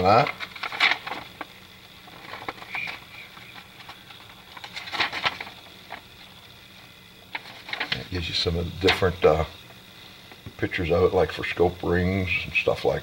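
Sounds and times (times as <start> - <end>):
paper leaflet rustling: 0.0 - 6.4, 7.3 - 9.2.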